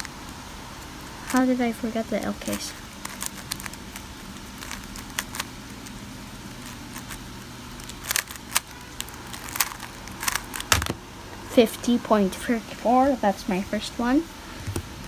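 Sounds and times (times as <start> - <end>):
puzzle cube plastic clicks: 2.3 - 6.0, 7.8 - 11.0.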